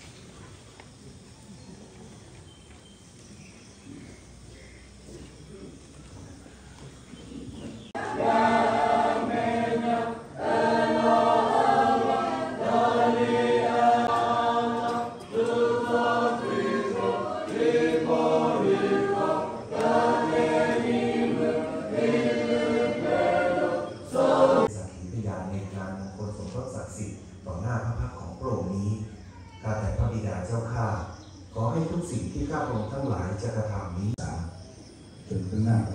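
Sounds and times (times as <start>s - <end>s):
congregation singing a hymn: 7.6s - 24.8s.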